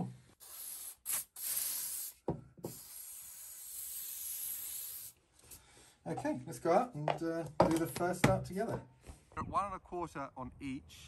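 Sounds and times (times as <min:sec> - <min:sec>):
aerosol spray can spraying: 0:00.4 - 0:05.2.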